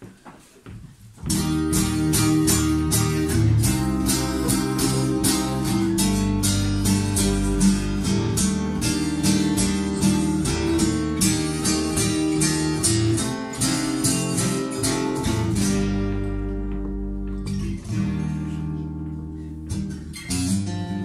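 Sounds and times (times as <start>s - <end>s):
acoustic guitar strumming: 1.2s - 21.0s
electric bass notes: 1.2s - 21.0s.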